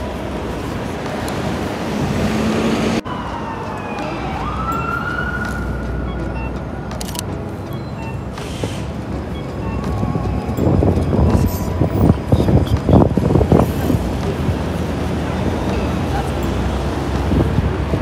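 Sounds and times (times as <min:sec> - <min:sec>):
street traffic: 0:00.0 - 0:18.0
emergency vehicle siren wailing: 0:02.7 - 0:07.0.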